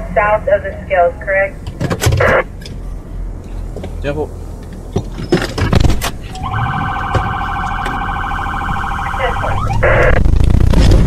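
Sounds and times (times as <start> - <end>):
police siren wailing: 2.2 - 2.5, 6.2 - 10.4.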